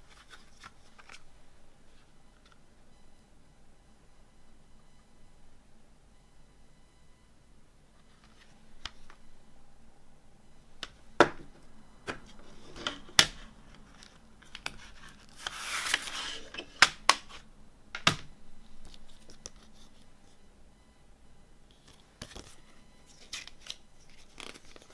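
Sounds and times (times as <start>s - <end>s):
paper booklet rustling: 13.8s - 17.4s, 21.8s - 24.9s.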